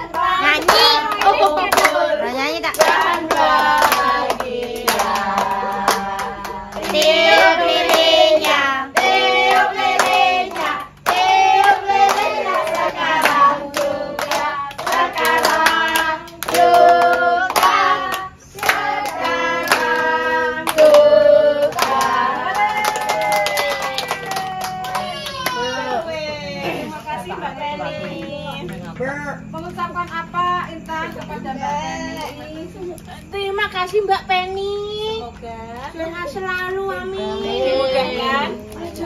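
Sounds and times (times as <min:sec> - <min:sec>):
people clapping: 0:00.0 - 0:26.0
children and women singing: 0:00.0 - 0:28.9, 0:29.6 - 0:34.0, 0:34.7 - 0:39.0.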